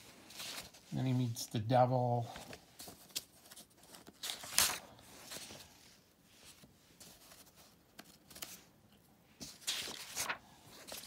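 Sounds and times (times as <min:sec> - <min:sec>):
paper pages rustling: 0:00.0 - 0:01.4, 0:02.2 - 0:08.8, 0:09.4 - 0:11.0
paper brushing: 0:09.4 - 0:11.0.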